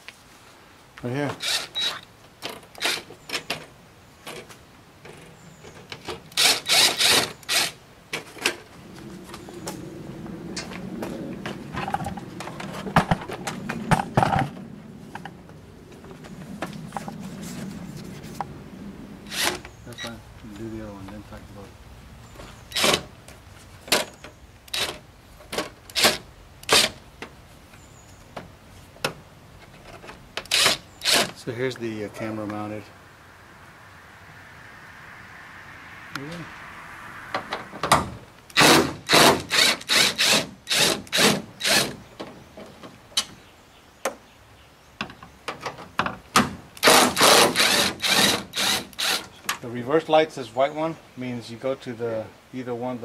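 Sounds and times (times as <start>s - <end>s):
cordless drill driving screws: 1.4s - 2.0s, 6.3s - 7.8s, 30.5s - 31.3s, 38.6s - 42.0s, 46.8s - 49.3s.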